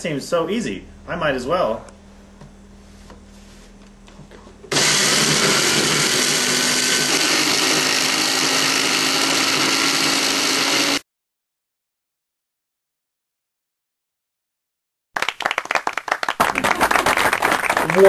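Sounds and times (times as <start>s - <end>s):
blender motor whirring: 4.7s - 11.0s.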